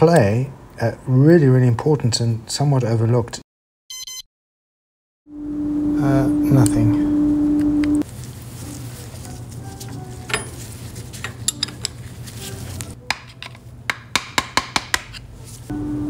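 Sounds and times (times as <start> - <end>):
low steady hum: 5.3 - 13.8, 15.4 - 16.0.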